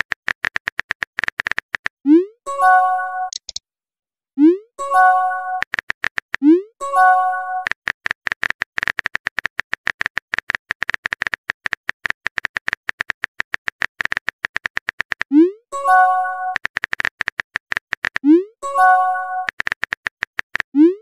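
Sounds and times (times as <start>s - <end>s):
keyboard typing clicks: 3.2s - 3.6s.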